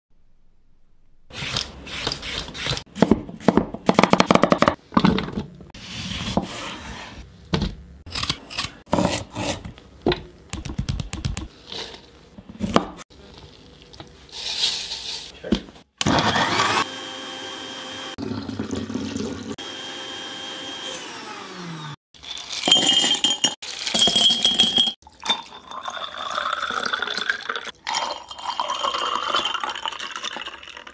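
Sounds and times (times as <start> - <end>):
blender running: 16.0 - 22.0
juice pouring into glass: 25.0 - 30.9.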